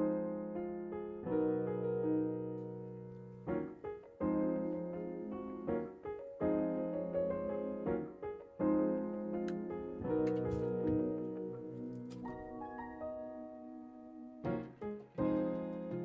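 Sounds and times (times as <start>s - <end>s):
piano playing slow chords: 0.0s - 16.0s.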